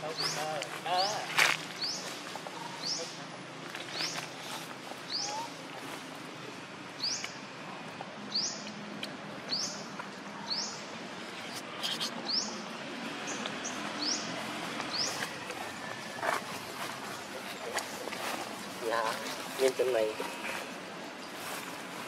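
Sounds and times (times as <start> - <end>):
bird chirping: 0.0 - 3.2, 7.0 - 7.5, 8.3 - 18.4.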